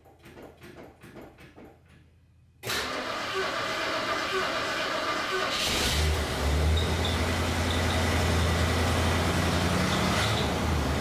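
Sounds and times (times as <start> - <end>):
car engine starting and idling: 2.6 - 11.0.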